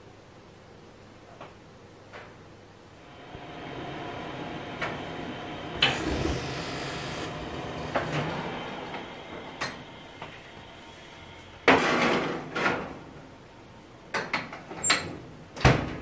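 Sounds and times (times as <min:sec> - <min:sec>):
loud hiss: 0:03.0 - 0:12.0
steady rushing noise: 0:03.0 - 0:12.4.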